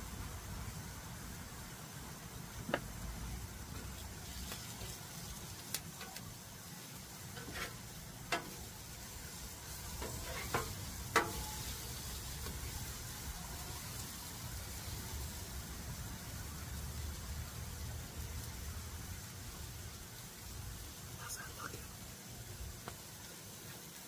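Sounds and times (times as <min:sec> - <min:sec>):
food sizzling on griddle: 0:00.0 - 0:24.0
metal spatula scraping griddle: 0:07.3 - 0:08.7, 0:09.8 - 0:12.8.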